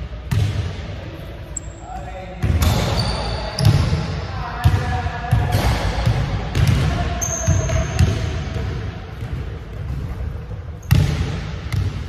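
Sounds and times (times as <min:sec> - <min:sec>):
ball hitting the rim: 0:00.3 - 0:00.8, 0:04.6 - 0:12.0
basketball bouncing on hardwood floor: 0:04.6 - 0:10.2, 0:10.8 - 0:12.0.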